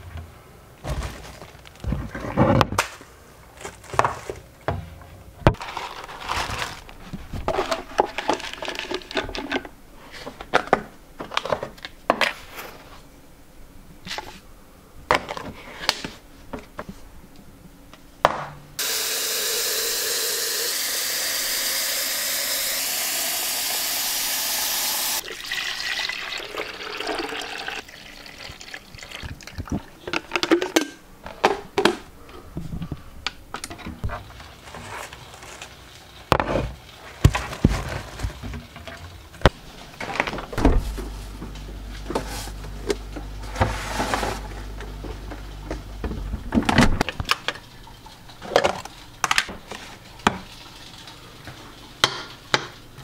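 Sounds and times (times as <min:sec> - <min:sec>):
coffee grinder running: 0:18.8 - 0:25.2
water pouring: 0:18.8 - 0:29.9.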